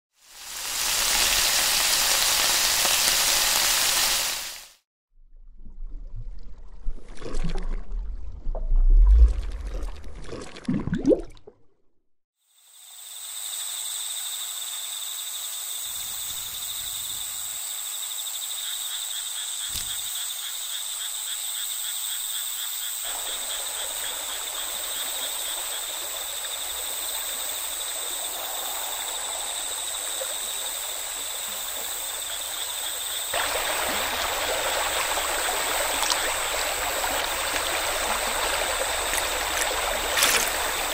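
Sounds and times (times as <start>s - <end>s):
running water: 0.2s - 4.8s, 23.0s - 40.9s
frogs or insects trilling: 12.4s - 40.9s.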